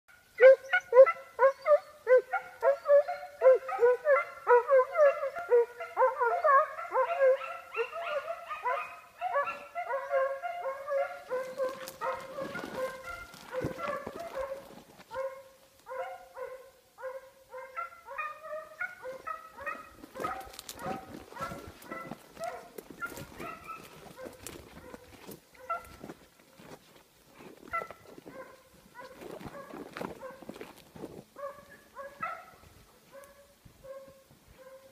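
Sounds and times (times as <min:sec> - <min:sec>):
hounds baying and yelping: 0:00.2 - 0:26.2, 0:27.6 - 0:30.8, 0:31.4 - 0:34.9
brush crackling: 0:10.9 - 0:16.0, 0:19.0 - 0:32.1.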